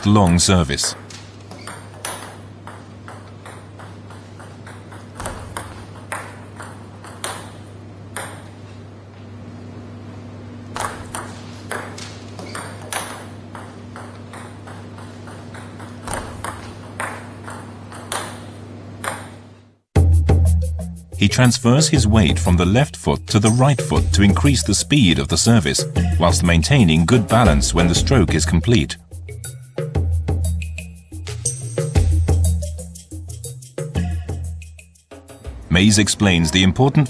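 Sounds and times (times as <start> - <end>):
ball bouncing on table: 0.9 - 8.5, 10.7 - 19.4
racket striking table tennis ball: 0.9 - 8.6, 10.7 - 19.4.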